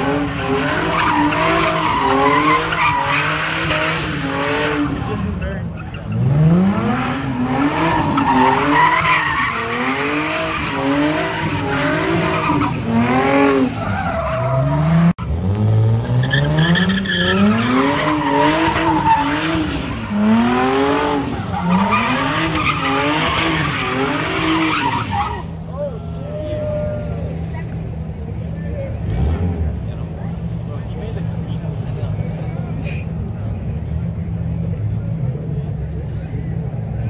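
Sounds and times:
car engine revving: 0:00.0 - 0:25.5
tyres squealing on asphalt: 0:00.0 - 0:27.6, 0:31.1 - 0:35.4.

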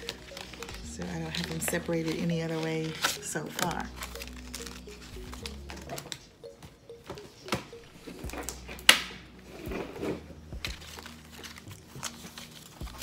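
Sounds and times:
paper rustling: 0:00.0 - 0:06.2, 0:09.8 - 0:13.0.

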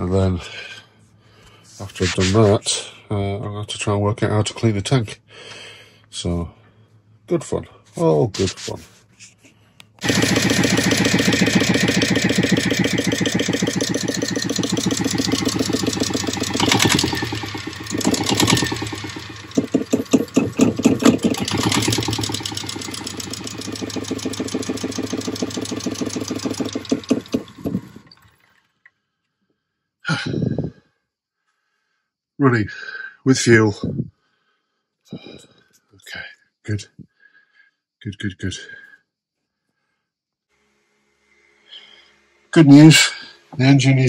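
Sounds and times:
diesel engine running: 0:10.0 - 0:28.4.

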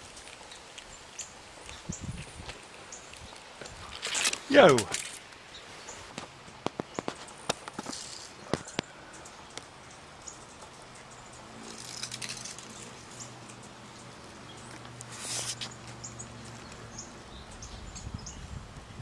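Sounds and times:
brief rustles: 0:03.6 - 0:08.9, 0:15.0 - 0:15.8.

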